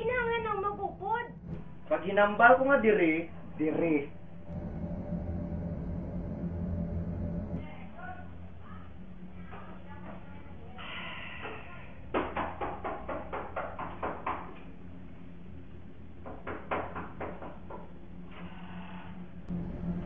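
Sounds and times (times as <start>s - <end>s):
knocking on wooden door: 12.1s - 14.6s, 16.2s - 17.9s.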